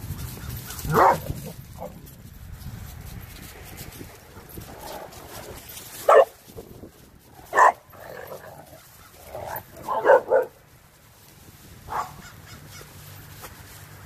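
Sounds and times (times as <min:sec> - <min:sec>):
dogs barking: 0:00.6 - 0:02.0, 0:06.0 - 0:06.4, 0:07.4 - 0:10.6, 0:11.9 - 0:12.8.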